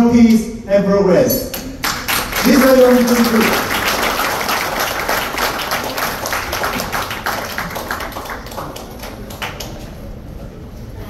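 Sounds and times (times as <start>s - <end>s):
audience applauding: 1.7s - 10.1s.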